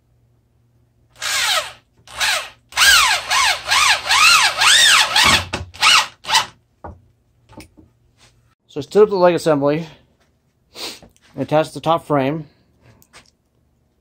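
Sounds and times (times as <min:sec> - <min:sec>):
electric drill whining: 0:01.2 - 0:06.5.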